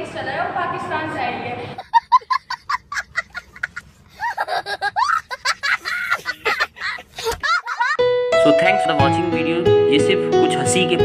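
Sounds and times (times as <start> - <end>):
young child laughing: 1.8 - 8.0.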